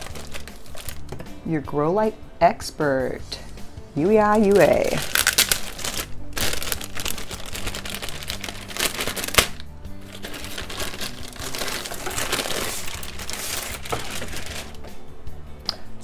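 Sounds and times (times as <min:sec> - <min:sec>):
plastic wrapping crinkling: 0:00.0 - 0:01.0, 0:04.4 - 0:14.9
background music: 0:00.0 - 0:16.0.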